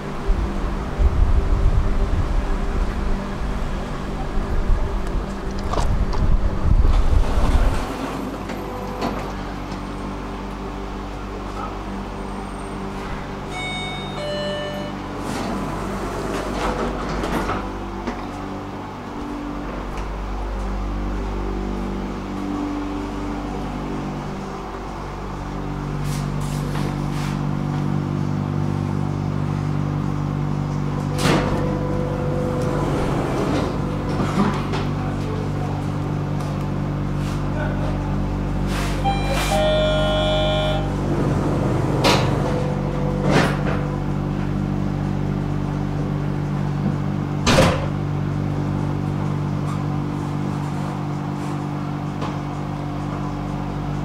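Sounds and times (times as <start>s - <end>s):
low rumble: 0.0s - 7.9s
tram electrical hum: 0.0s - 54.0s.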